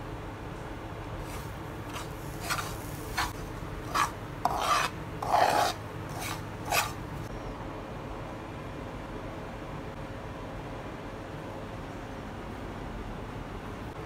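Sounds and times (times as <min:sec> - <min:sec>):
utensil scraping a pan: 0:01.2 - 0:07.0.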